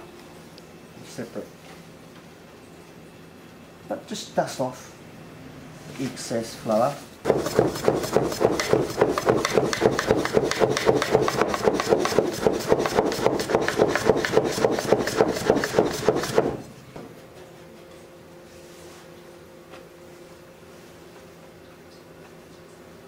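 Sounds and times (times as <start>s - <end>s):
knife chopping on wooden board: 7.3s - 16.6s.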